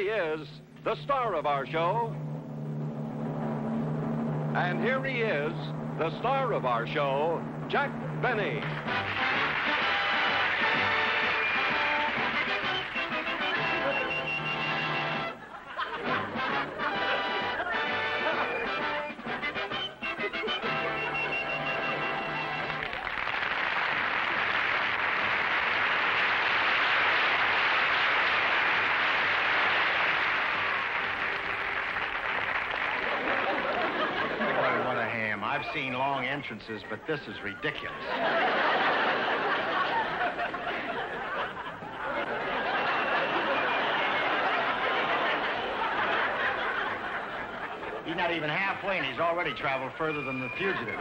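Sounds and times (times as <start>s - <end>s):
audience applauding: 8.6s - 15.3s, 21.5s - 35.1s, 42.0s - 47.9s.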